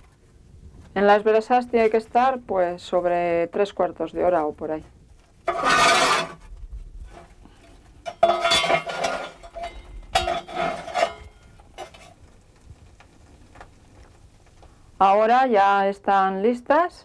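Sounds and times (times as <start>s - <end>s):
metal clinking in embers: 5.4s - 6.4s, 7.1s - 14.8s.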